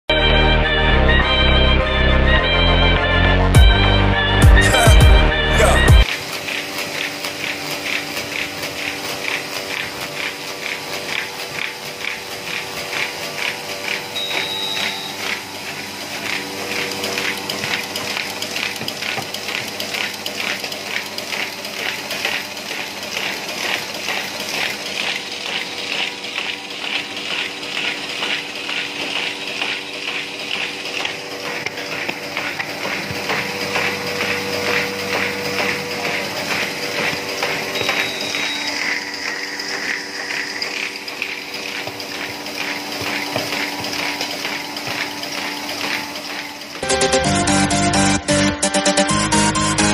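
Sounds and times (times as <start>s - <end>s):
music: 0.1s - 6.1s, 46.8s - 49.9s
steady mechanical hum: 0.2s - 49.9s
paper folding machine clatter: 5.6s - 47.0s.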